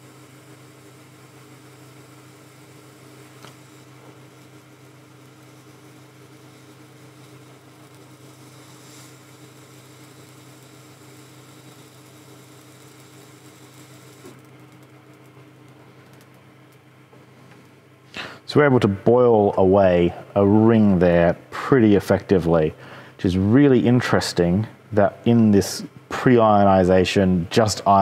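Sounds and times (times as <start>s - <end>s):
laser cutter humming: 0.0s - 17.2s.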